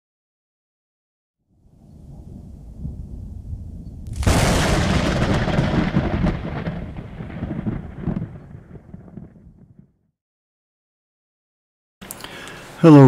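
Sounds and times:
thunderclap crack and rumble: 1.7s - 10.1s.

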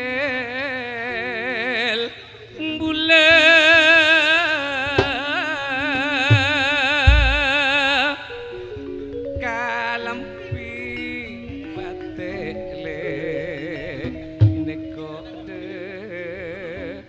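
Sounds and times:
person singing with vibrato: 0.0s - 17.0s
deep drum strokes: 6.3s - 7.5s
gamelan accompaniment: 6.3s - 16.9s.

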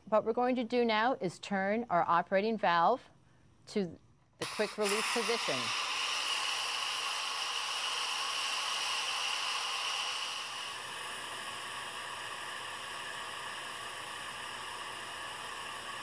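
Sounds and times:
pressure cooker steam hissing: 4.4s - 16.0s.

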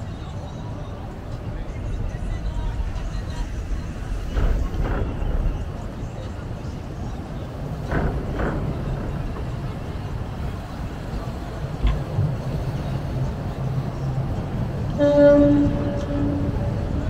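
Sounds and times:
boat engine rumble: 0.0s - 17.0s
thud: 7.8s - 10.4s
boat horn: 14.8s - 17.0s.

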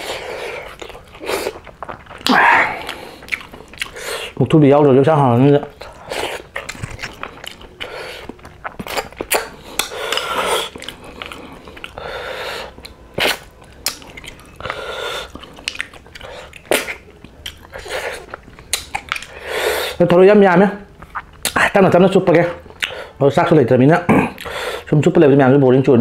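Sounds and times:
chewing: 0.0s - 21.6s, 22.6s - 23.2s
mouth clicks: 22.7s - 23.1s.

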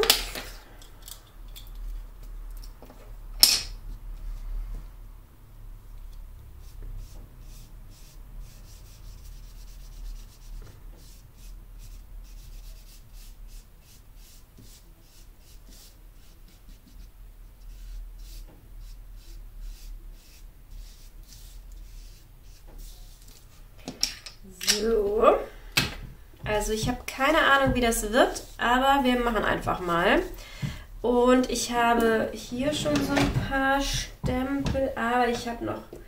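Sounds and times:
ink pad swishing on paper: 6.6s - 23.5s.

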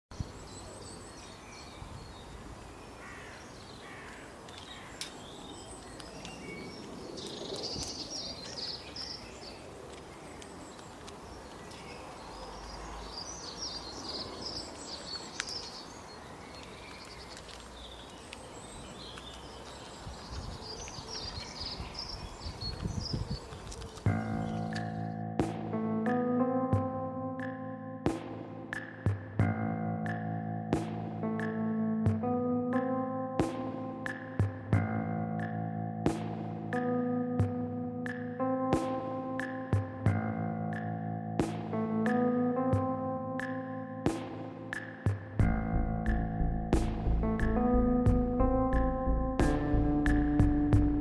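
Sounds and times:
birds chirping and twittering: 0.1s - 25.5s
outdoor background noise: 0.1s - 32.8s.

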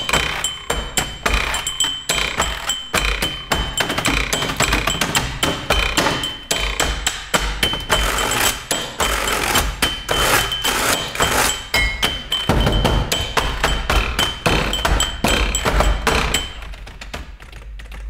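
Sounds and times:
clicks and taps on keyboards: 0.0s - 18.0s.

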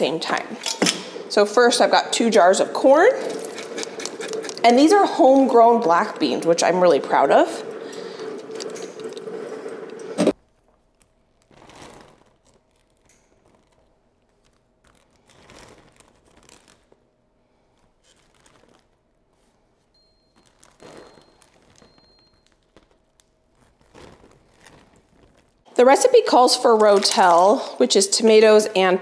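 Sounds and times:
plastic bags crinkling: 7.4s - 27.9s.

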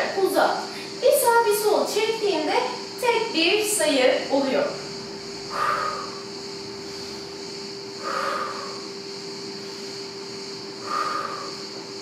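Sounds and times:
steady hum: 0.0s - 12.0s
woman exhaling forcefully: 5.4s - 9.0s, 10.8s - 11.8s.

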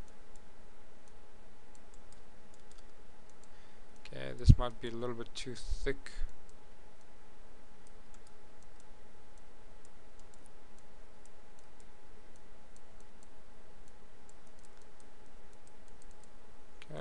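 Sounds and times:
computer mouse clicks: 0.0s - 4.1s, 7.8s - 16.9s
faint steady tone: 0.0s - 17.0s.

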